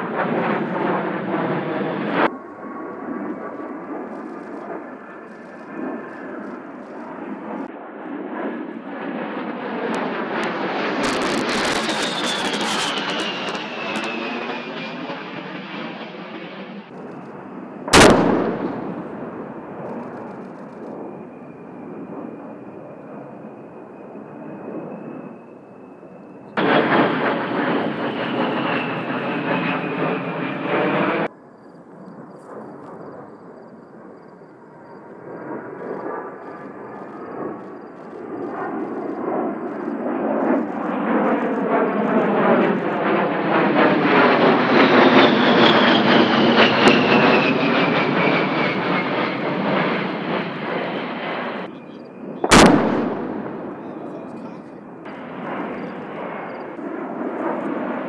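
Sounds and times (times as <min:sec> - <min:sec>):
jet engines whining in flyby: 0:00.0 - 0:58.0
sharp bang: 0:17.9 - 0:19.1, 0:52.4 - 0:53.8.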